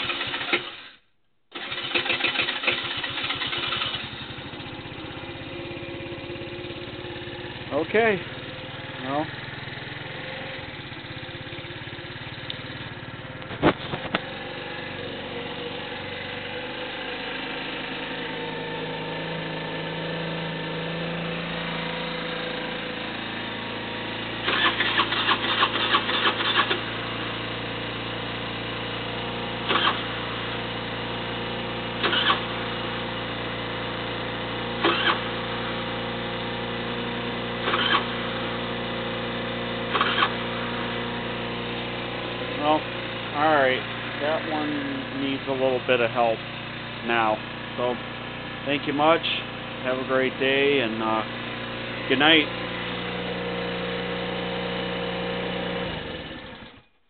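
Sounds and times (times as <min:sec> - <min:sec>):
moped engine idling: 0:00.0 - 0:00.9, 0:01.6 - 0:56.9
rapid engine clatter: 0:00.0 - 0:15.0, 0:22.1 - 0:31.0, 0:31.9 - 0:32.6, 0:33.2 - 0:35.4, 0:37.6 - 0:38.3, 0:39.8 - 0:54.1.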